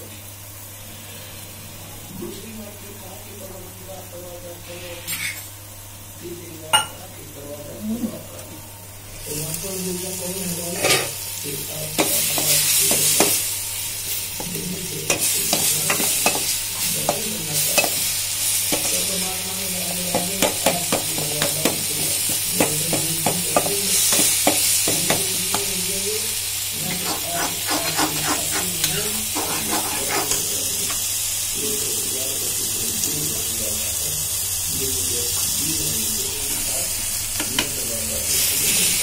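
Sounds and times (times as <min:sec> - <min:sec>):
vegetables sizzling in oil: 0:04.6 - 0:39.0
metal spoon scraping a pan: 0:04.7 - 0:05.5, 0:26.8 - 0:31.0.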